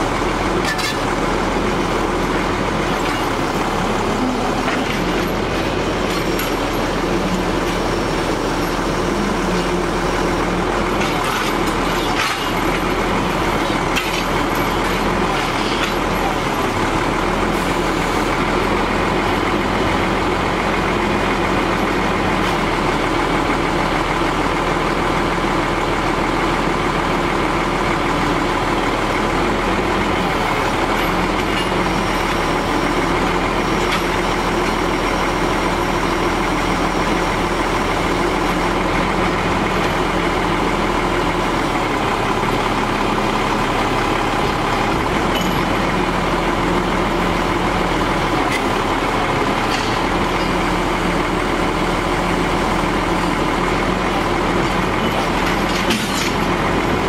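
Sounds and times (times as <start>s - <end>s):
diesel truck engine running steadily: 0.0s - 57.0s.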